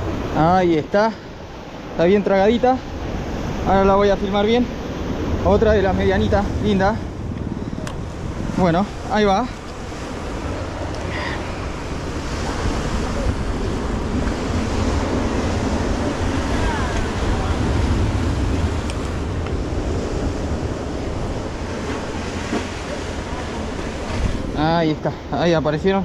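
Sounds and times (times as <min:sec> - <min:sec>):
sea surf washing onto beach: 0:00.0 - 0:26.0
wind rumbling on microphone: 0:00.0 - 0:26.0.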